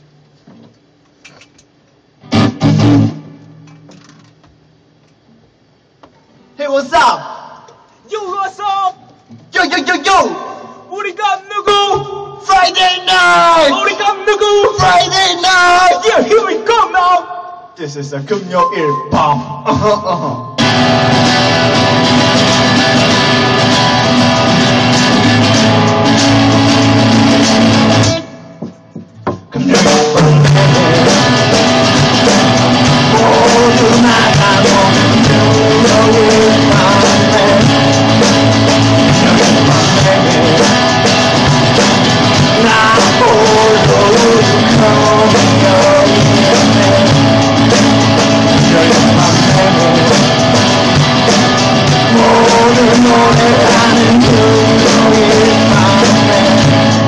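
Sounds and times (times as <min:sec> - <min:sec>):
drum kit: 0:02.2 - 0:04.6, 0:18.4 - 0:57.0
man singing: 0:29.5 - 0:31.8, 0:32.4 - 0:38.3, 0:39.0 - 0:41.3, 0:42.4 - 0:50.8, 0:51.8 - 0:57.0.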